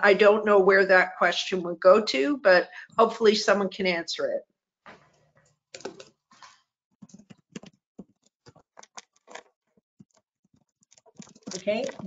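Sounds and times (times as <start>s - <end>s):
faint irregular clicks: 5.4s - 12.0s.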